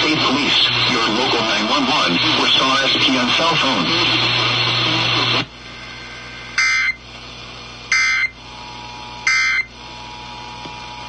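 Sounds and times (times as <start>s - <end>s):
radio hiss and hum: 0.0s - 11.0s
harsh buzzing data tone bursts: 5.7s - 7.0s, 7.9s - 8.6s, 9.2s - 9.8s.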